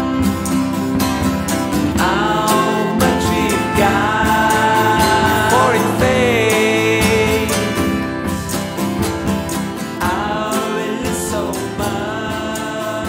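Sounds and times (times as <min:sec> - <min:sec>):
acoustic guitar strumming: 0:00.0 - 0:13.0
sliding held melody: 0:00.0 - 0:13.0.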